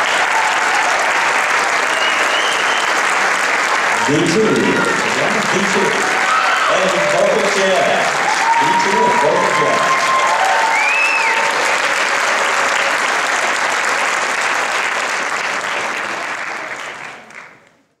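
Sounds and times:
audience applauding: 0.0 - 17.9
rising-and-falling whistle: 1.9 - 3.0, 10.7 - 11.4.

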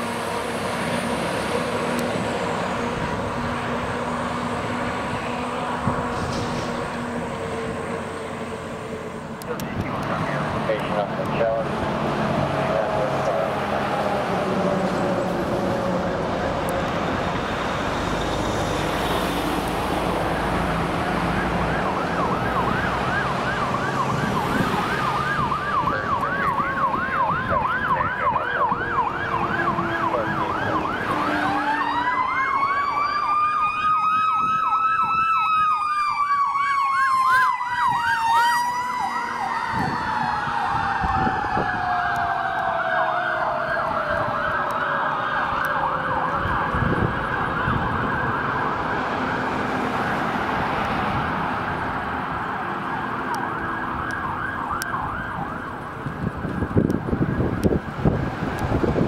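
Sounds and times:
truck engine rumble: 0.0 - 59.0
siren winding up and down: 20.0 - 49.4, 52.8 - 59.0
electronic siren yelping: 21.2 - 49.5.

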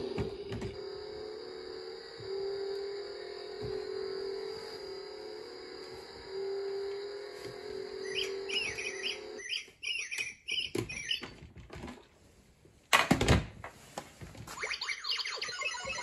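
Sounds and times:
steady hum: 0.0 - 9.5
chirping electronic toy notes: 7.9 - 11.3, 14.6 - 16.0.

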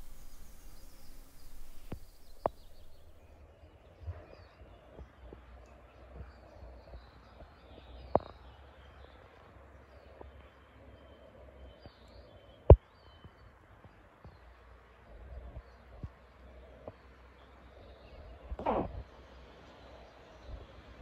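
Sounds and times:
sharp thumps: 0.0 - 3.2
songbird chirps: 0.0 - 21.0.

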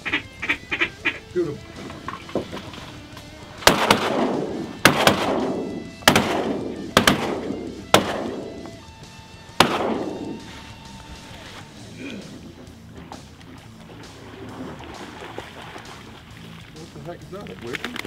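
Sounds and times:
shotgun shots echoing: 3.6 - 8.8, 9.5 - 10.5.

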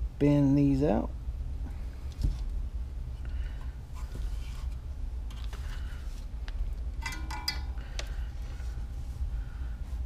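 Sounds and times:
low hum: 0.0 - 10.0
metallic rattle of spring holder: 7.0 - 8.1.

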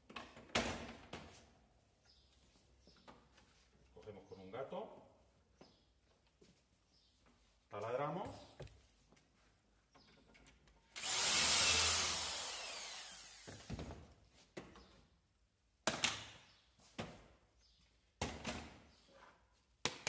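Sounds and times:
cordless drill boring through metal: 11.0 - 13.7.

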